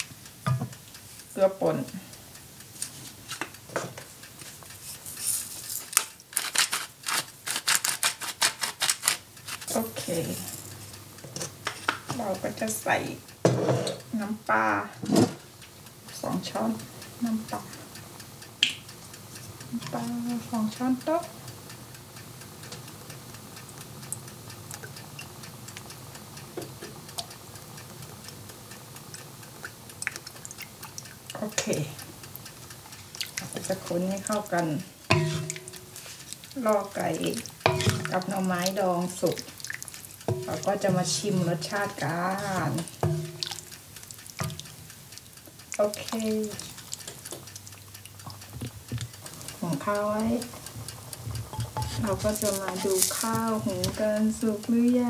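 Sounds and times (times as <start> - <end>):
salt grinder clicking: 5.9 - 9.7
curry simmering and bubbling: 15.7 - 55.0.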